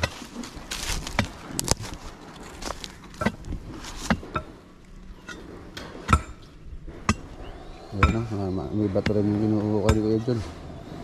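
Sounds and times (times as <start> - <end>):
digging tool striking stones: 0.0 - 1.9, 2.8 - 4.6, 5.2 - 7.3, 8.0 - 8.3, 9.8 - 10.2.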